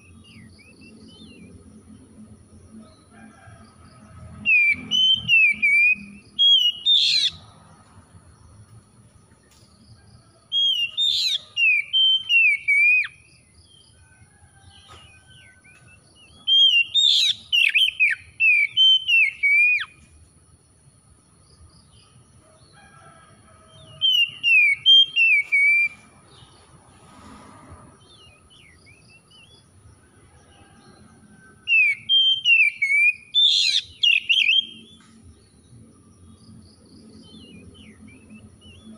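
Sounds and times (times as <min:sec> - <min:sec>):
bird singing whistled phrases: 0:04.5 - 0:07.4, 0:10.6 - 0:13.1, 0:16.4 - 0:19.9, 0:31.7 - 0:34.9.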